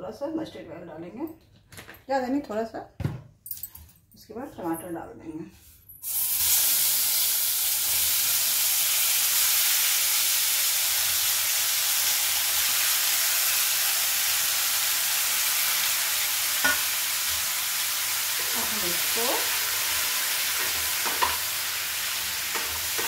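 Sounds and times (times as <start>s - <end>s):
tomatoes sizzling in hot oil: 6.0s - 23.0s.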